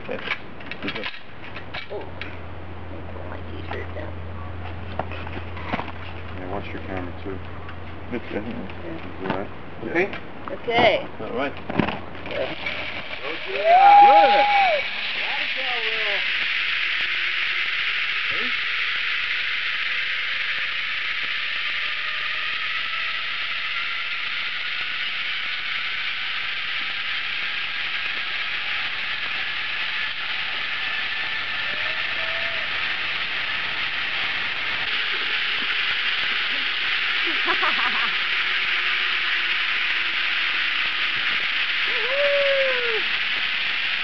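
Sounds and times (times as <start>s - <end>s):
shrill insect chorus: 12.3s - 44.0s
short pitched calls: 13.4s - 44.0s.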